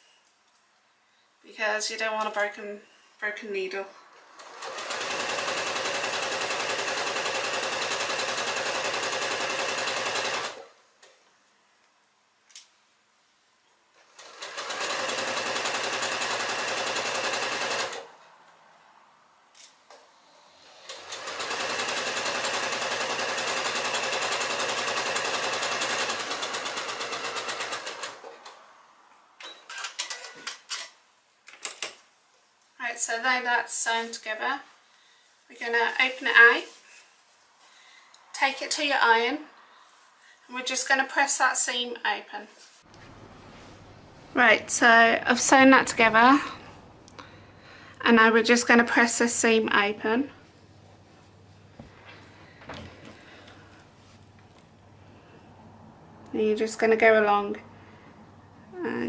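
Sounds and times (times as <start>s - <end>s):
sewing machine stitching: 4.3s - 10.7s, 14.0s - 18.1s, 20.7s - 28.6s.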